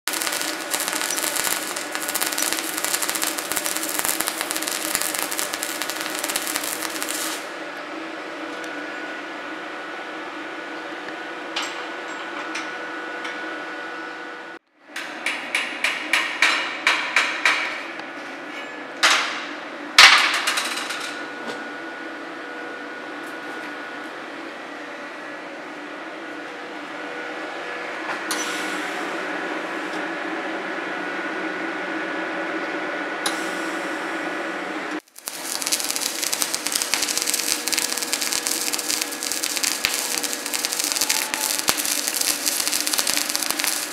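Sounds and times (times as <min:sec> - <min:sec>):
welding arc crackling: 0:00.0 - 0:07.6, 0:35.0 - 0:43.9
welding machine hum: 0:00.0 - 0:09.0, 0:34.9 - 0:43.9.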